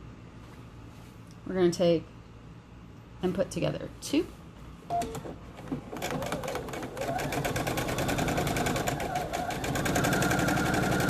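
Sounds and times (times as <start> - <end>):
electric sewing machine stitching: 6.0 - 11.0.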